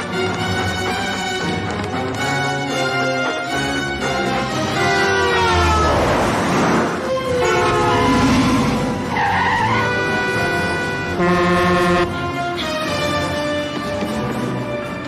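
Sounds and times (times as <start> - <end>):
orchestral film music: 0.0 - 15.0
car tyres screeching: 5.0 - 11.2
car horn blaring: 7.2 - 8.9, 9.5 - 12.2.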